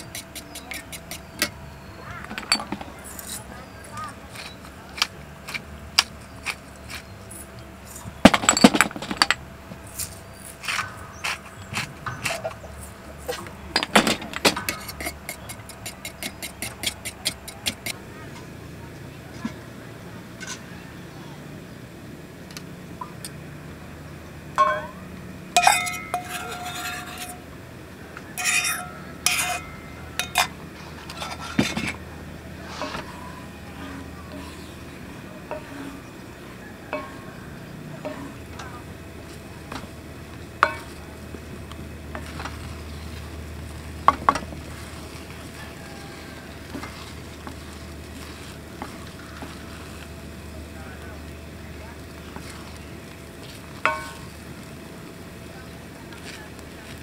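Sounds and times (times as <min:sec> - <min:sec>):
kitchenware clicking and clinking: 0:02.2 - 0:03.5, 0:08.2 - 0:09.4, 0:24.6 - 0:25.0, 0:25.6 - 0:27.4, 0:28.4 - 0:32.0, 0:36.9 - 0:38.7.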